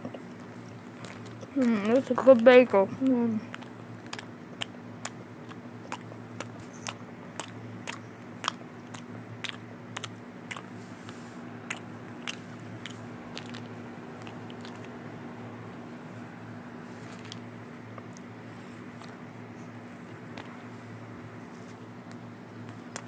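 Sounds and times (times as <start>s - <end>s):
crunchy chewing: 0.1s - 2.5s, 3.4s - 15.1s, 16.9s - 20.6s.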